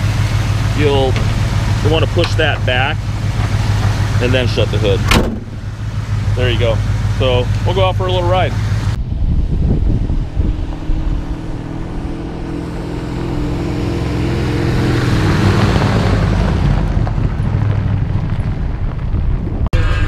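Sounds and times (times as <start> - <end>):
tyres rushing on gravel: 0.0 - 8.6
pickup truck engine running: 0.0 - 20.0.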